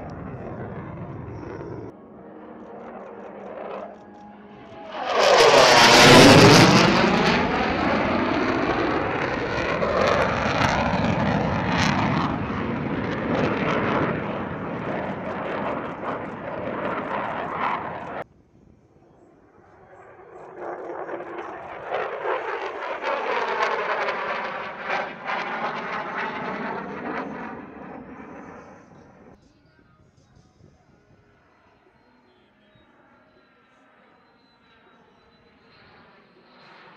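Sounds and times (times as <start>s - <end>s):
fighter jet flying past: 0.0s - 18.2s, 19.5s - 29.4s.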